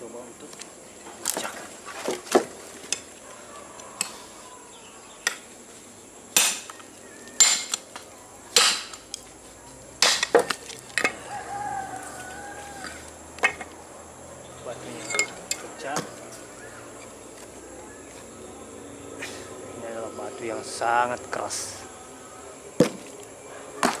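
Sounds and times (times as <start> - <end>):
cleaver clanking against rock: 8.6 - 9.1.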